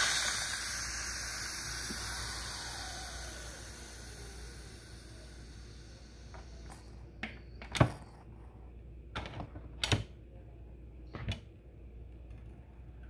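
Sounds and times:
faint steam hiss: 0.0 - 7.2.

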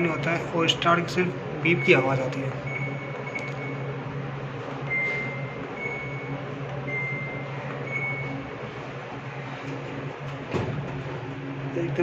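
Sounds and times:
washing machine control panel beeping: 0.0 - 0.8, 1.7 - 4.0, 4.8 - 8.6
steady low hum: 0.0 - 12.0.

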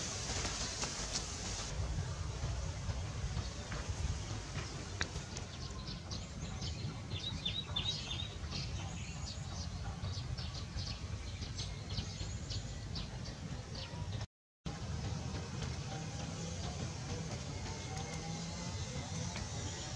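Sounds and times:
steady low rumble: 0.0 - 12.4
small birds chirping: 3.3 - 14.2.

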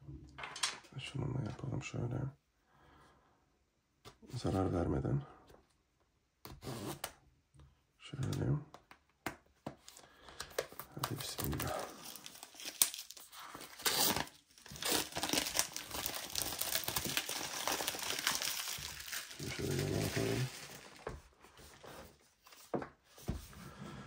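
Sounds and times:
plastic wrapping tearing and crumpling: 10.9 - 21.3.

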